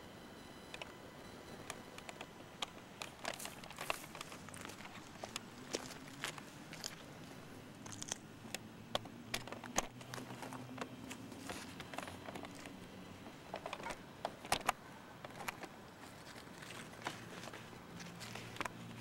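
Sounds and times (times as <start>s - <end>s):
faint low hum: 0.0s - 19.0s
camera handling noise: 1.7s - 7.0s, 7.8s - 12.8s, 13.5s - 19.0s
footsteps on concrete: 3.4s - 8.2s.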